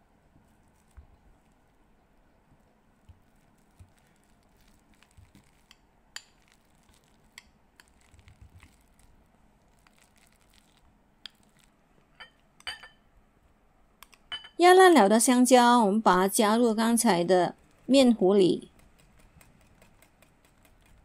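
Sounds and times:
masher tapping glass bowl: 0:12.2 - 0:13.0, 0:14.3 - 0:14.6.

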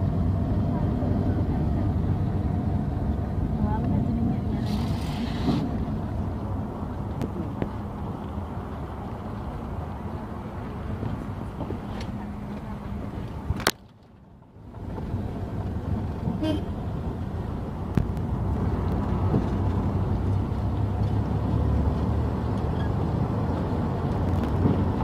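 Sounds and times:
car rumbling on the move: 0:00.0 - 0:25.0
brief horn toot: 0:16.4 - 0:16.7.

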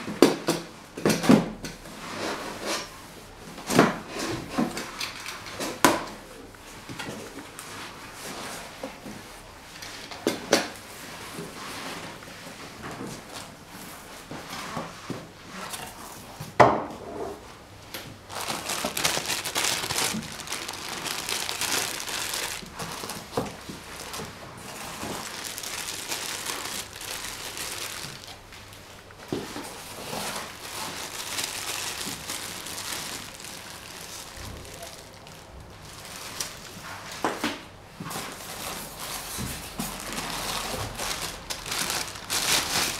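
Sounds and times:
plastic bags crinkling: 0:18.2 - 0:37.2, 0:38.3 - 0:42.9.

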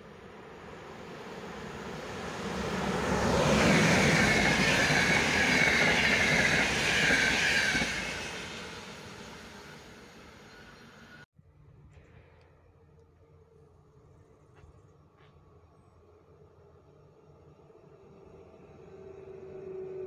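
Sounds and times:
train wheel-and-rail noise: 0:00.0 - 0:11.2.

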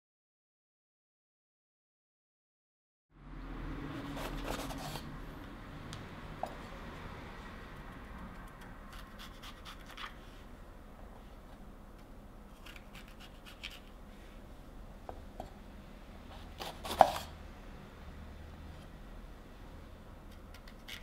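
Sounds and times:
knife cutting peppers on board: 0:08.9 - 0:10.2, 0:12.5 - 0:13.9.

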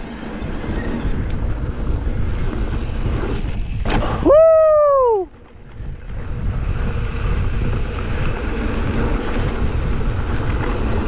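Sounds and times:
wind rushing over microphone: 0:00.0 - 0:11.0
person shouting woo: 0:04.2 - 0:05.3.

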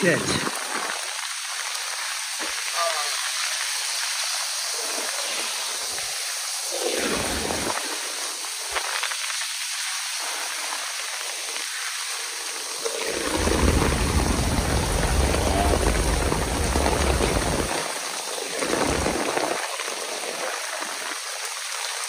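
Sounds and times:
heavy rain: 0:00.0 - 0:22.0
low rumble: 0:13.1 - 0:17.8.

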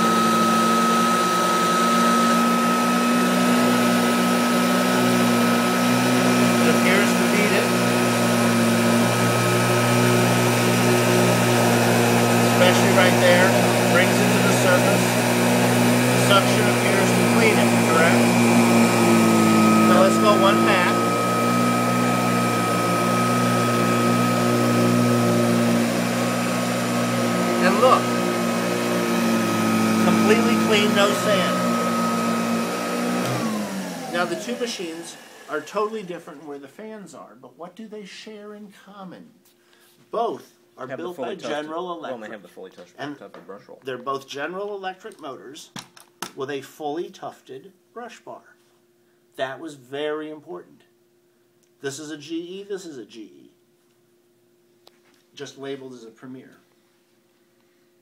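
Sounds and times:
vacuum cleaner motor whine: 0:00.0 - 0:36.5
brushroll beating carpet: 0:02.3 - 0:35.8.

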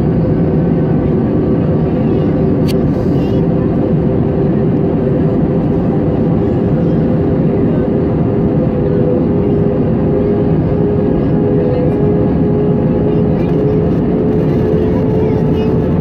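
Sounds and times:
engine and airflow rush: 0:00.0 - 0:16.0.

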